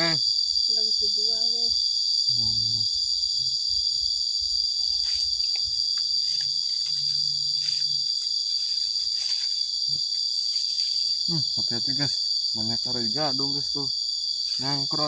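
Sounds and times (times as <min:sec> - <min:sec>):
insects chirping: 0:00.0 - 0:15.0
footsteps in leafy undergrowth: 0:05.0 - 0:11.1.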